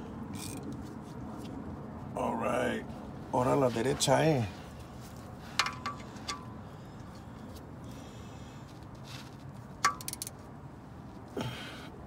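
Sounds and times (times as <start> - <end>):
ratchet wrench clicks: 9.8 - 10.4.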